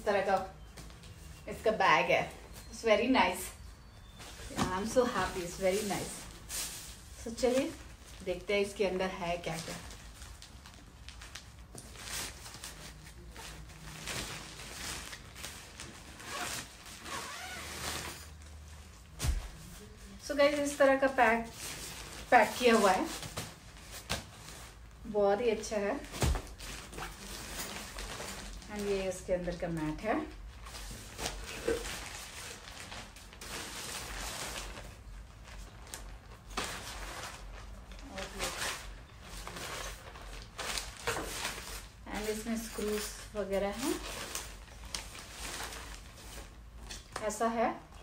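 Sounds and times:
fabric bag handling noise: 0.1s - 46.9s
tent fabric rustling: 9.5s - 20.0s
zipper being pulled open: 16.2s - 18.3s.

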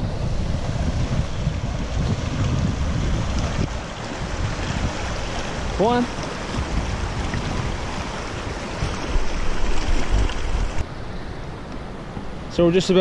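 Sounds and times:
wind buffeting microphone: 0.0s - 12.5s
river water rushing over rocks: 1.6s - 10.8s.

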